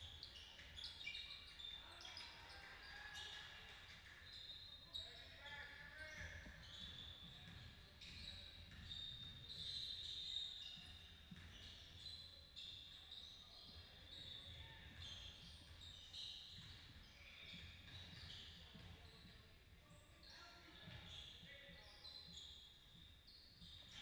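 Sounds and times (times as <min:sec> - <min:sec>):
sneaker squeaks: 0:00.0 - 0:24.0
basketball bouncing thuds: 0:10.8 - 0:11.8.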